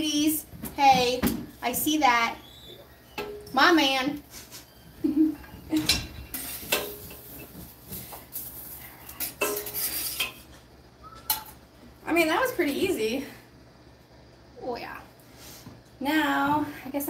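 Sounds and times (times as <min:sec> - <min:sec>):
metal tongs clacking on griddle: 0:05.9 - 0:07.4, 0:09.1 - 0:10.4.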